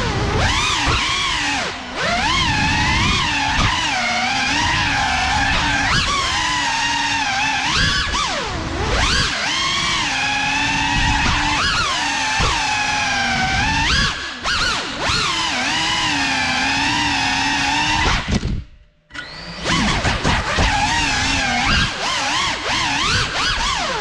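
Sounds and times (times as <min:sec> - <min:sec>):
drone motors whining: 0:00.0 - 0:24.0.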